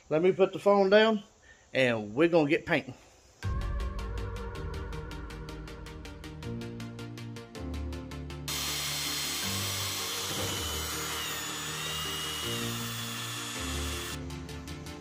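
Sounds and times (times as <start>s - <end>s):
background music: 3.4s - 15.0s
electric drill whirring: 8.5s - 14.2s.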